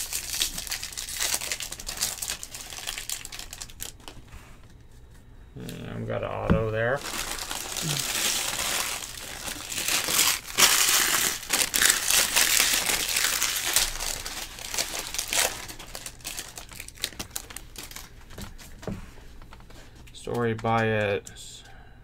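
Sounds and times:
foil wrappers crinkling and tearing: 0.0 - 4.2, 6.9 - 19.8.

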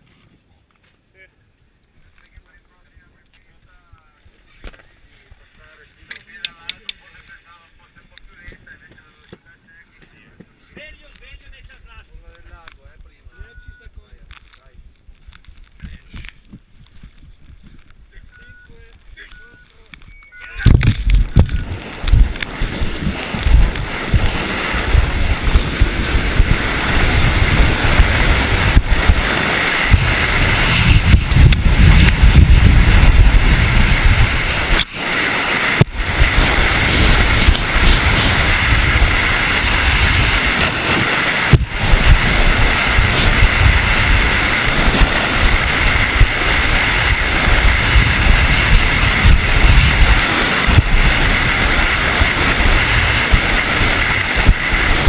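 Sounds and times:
wind buffeting a camera: 2.0 - 55.0
skis hissing on hard snow: 20.9 - 55.0.

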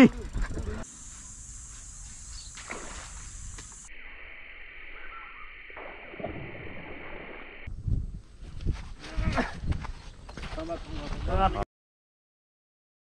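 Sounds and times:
high-pitched hiss: 0.0 - 7.7.

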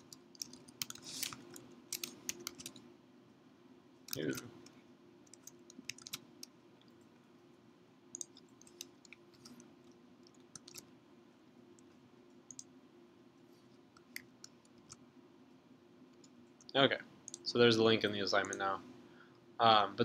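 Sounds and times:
mouse and keyboard clicks: 0.0 - 2.8, 4.1 - 6.5, 8.1 - 10.9
faint steady hum: 0.0 - 20.0.

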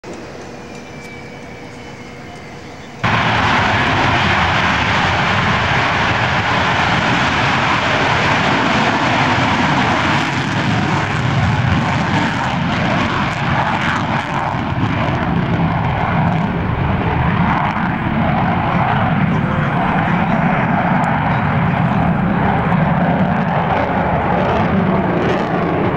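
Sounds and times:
jet engine at takeoff: 0.0 - 25.9.

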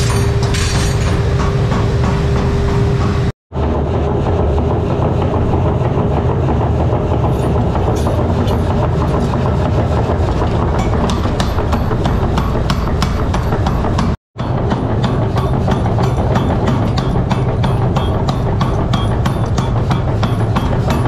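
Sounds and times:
loud mechanical rumble: 0.0 - 21.0
power hammer striking steel: 7.1 - 21.0.

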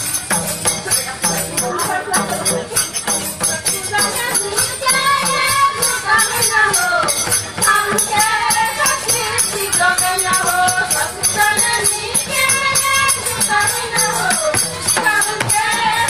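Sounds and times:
folk singing: 0.0 - 16.0
hand drums fast beat: 0.0 - 16.0.

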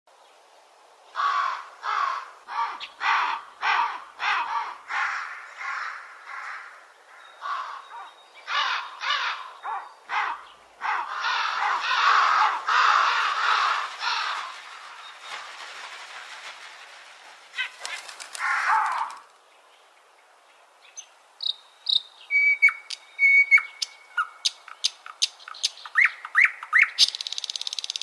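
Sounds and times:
birds harsh raspy calls: 1.2 - 15.6, 17.5 - 19.3.

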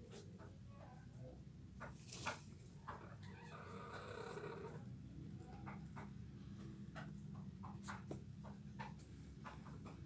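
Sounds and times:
chickens pecking at feed: 4.2 - 10.0.

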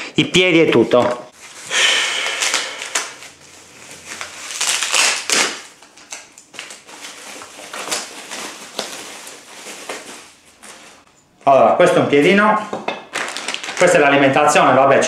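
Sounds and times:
plastic and paper crinkling: 1.3 - 11.1, 13.1 - 14.4.

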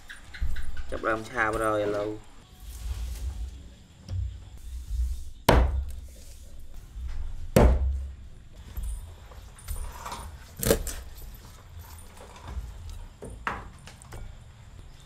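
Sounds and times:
cleaver chopping on wooden board: 5.5 - 6.0, 7.6 - 8.0.

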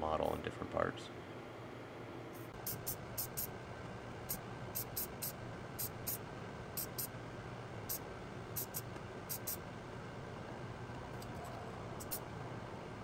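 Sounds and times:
steady low hum: 0.0 - 13.0
spray can hissing: 8.6 - 9.6, 12.0 - 12.2.

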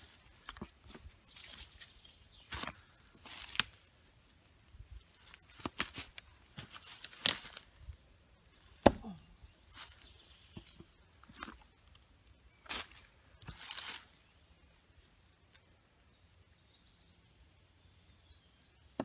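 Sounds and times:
boots crunching in dry leaves: 0.0 - 4.0, 5.1 - 7.9, 12.7 - 14.3.

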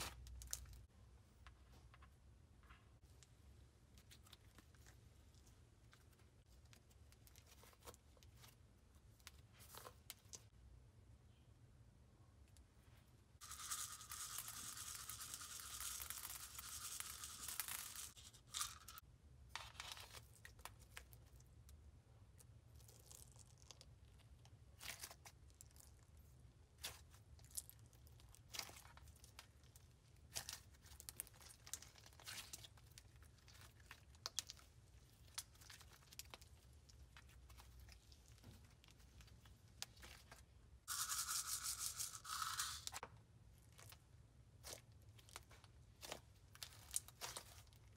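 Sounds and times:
sprinkles pouring onto slime: 13.4 - 19.0, 40.9 - 43.0.

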